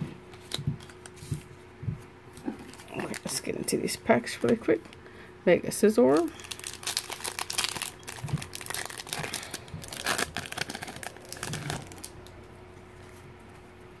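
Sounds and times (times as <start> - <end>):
foil wrapper crinkling: 6.1 - 12.4.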